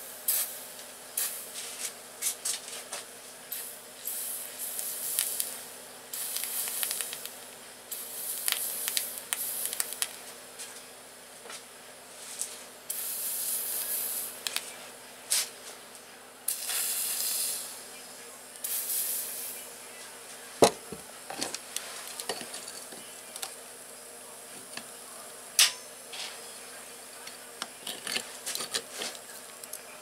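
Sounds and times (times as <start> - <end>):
aerosol spray can hissing: 0.3 - 0.6, 3.6 - 10.1, 12.9 - 14.5, 16.5 - 17.7, 18.6 - 19.6.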